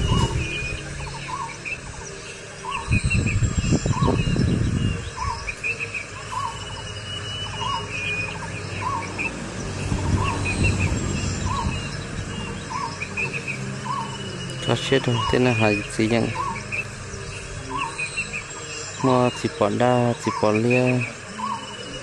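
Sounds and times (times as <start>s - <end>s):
wind rumble on microphone: 0.0s - 5.6s, 8.8s - 14.1s
high bird chirps: 0.0s - 22.0s.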